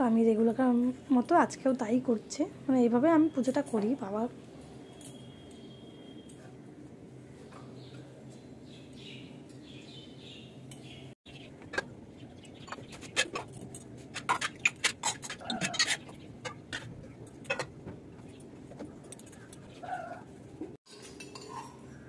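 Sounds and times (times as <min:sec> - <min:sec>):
brass vessels clinking: 0:20.9 - 0:22.0.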